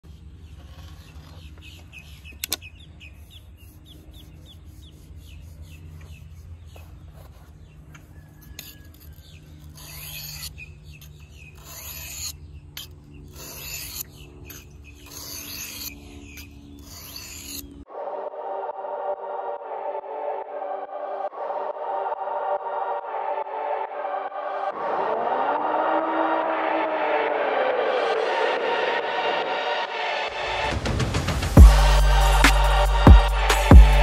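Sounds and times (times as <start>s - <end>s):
birds chirping: 0.0s - 8.2s, 10.3s - 17.8s
knife scraping on sharpening stone: 8.0s - 17.7s.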